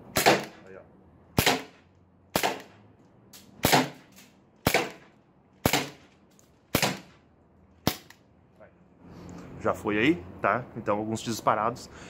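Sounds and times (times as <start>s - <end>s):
airsoft pistol shots: 0.1s - 0.6s, 1.4s - 2.8s, 3.6s - 6.0s, 6.7s - 7.2s.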